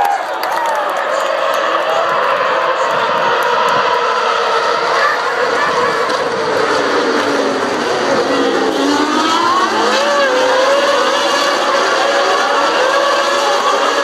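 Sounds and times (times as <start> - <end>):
racing car engines: 0.0 - 14.0.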